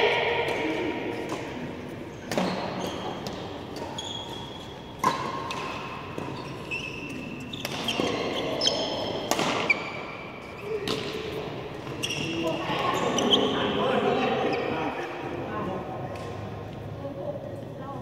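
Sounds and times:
racket hitting shuttlecock: 0:00.3 - 0:10.0, 0:10.8 - 0:12.0
shoes squeaking on mat: 0:02.4 - 0:10.8, 0:11.8 - 0:13.7.

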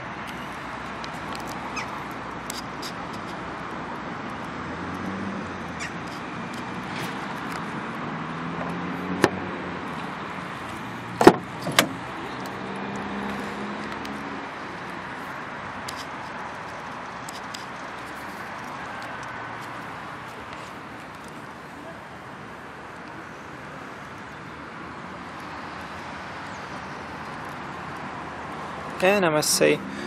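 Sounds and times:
car door latch clunks: 0:11.2 - 0:12.0.

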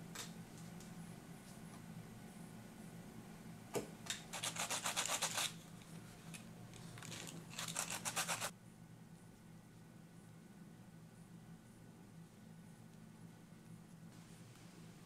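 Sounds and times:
sanding stick rubbing leather: 0:04.3 - 0:05.6, 0:07.6 - 0:08.5.

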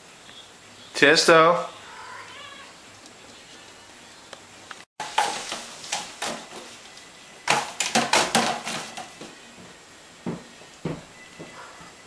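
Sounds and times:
sharp knocks and thumps: 0:05.0 - 0:06.7, 0:07.4 - 0:11.9.

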